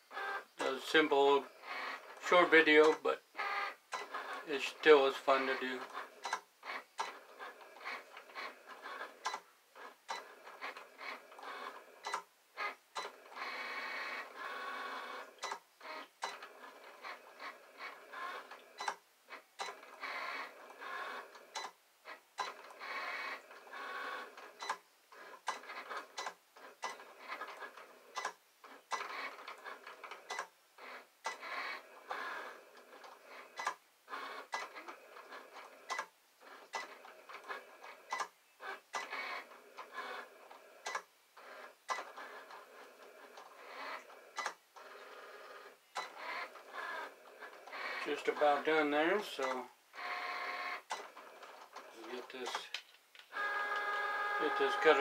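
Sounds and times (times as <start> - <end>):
cutting machine motors whirring: 39.0 - 55.0.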